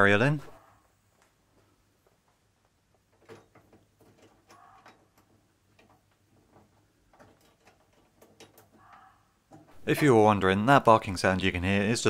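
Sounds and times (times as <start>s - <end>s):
deer barking: 0.4s - 0.9s, 4.5s - 5.1s, 8.7s - 9.4s.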